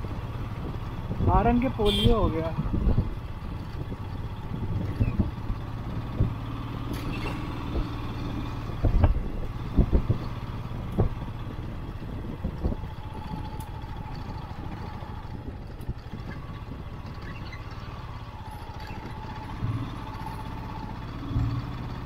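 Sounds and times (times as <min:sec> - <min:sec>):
motorcycle engine running: 0:00.0 - 0:22.0
bike knocking and rattling: 0:08.7 - 0:22.0.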